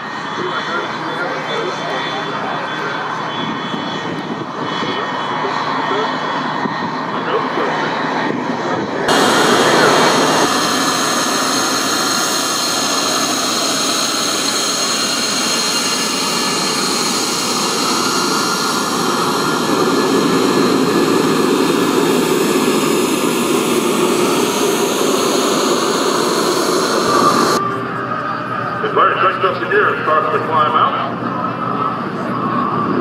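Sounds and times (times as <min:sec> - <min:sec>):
jet engine taxiing past: 0:00.0 - 0:33.0.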